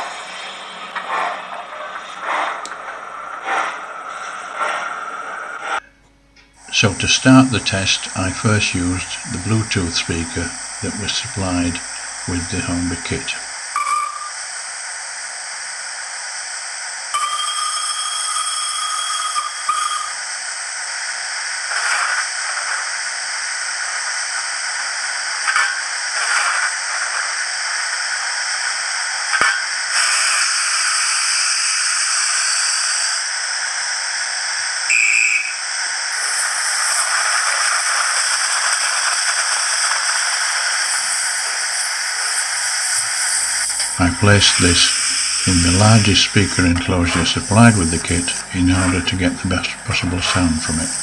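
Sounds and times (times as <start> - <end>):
steam hiss from small speaker: 0.0 - 5.8, 6.6 - 51.0
short steam bursts: 6.6 - 18.4, 19.2 - 51.0
whistle-like tone: 13.8 - 14.4, 17.2 - 20.2, 34.9 - 35.6.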